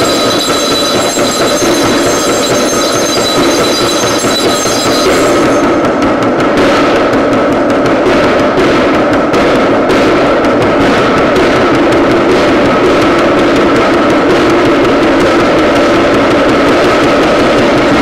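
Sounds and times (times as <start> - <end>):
high ringing tones: 0.0 - 6.1
dense drone: 0.0 - 8.0
frame drum beaten fast: 0.0 - 18.0.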